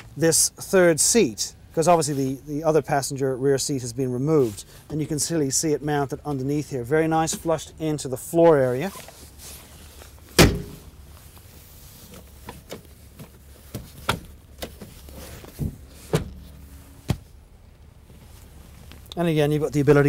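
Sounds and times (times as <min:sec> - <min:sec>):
seat mechanism clunk: 0:10.4 - 0:10.9, 0:12.4 - 0:17.3.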